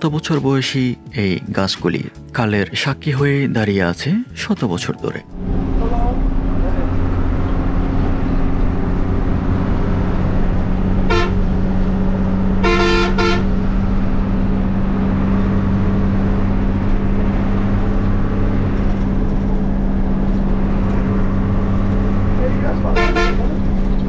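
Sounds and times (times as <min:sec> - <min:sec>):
bus engine and road noise: 0:00.0 - 0:24.0
horn tooting: 0:10.2 - 0:14.4, 0:22.4 - 0:24.0.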